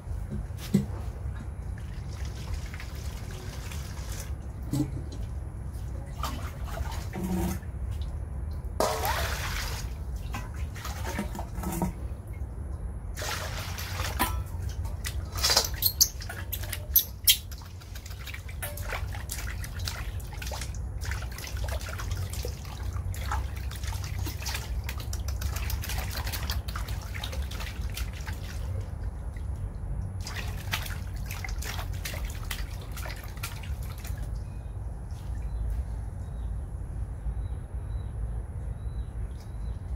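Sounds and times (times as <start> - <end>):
water splashing in metal basin: 1.8 - 5.3, 6.0 - 12.2, 13.1 - 34.5.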